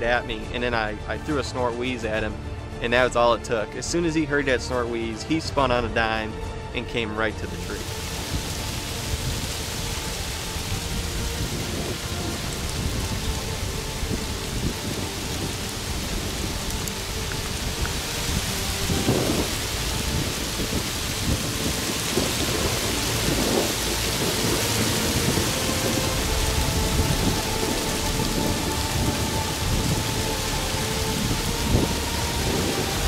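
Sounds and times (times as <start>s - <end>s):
even hiss: 7.4s - 33.0s
fluttering low wind rumble: 7.8s - 33.0s.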